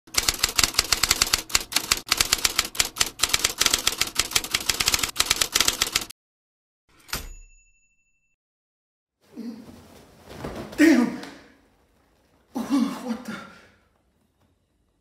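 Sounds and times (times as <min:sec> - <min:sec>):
typewriter keys clacking: 0:00.1 - 0:06.1.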